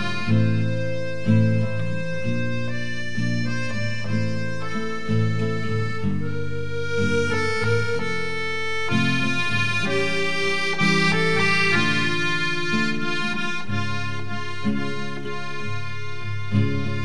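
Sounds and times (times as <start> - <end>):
instrumental background music: 0.0 - 17.0.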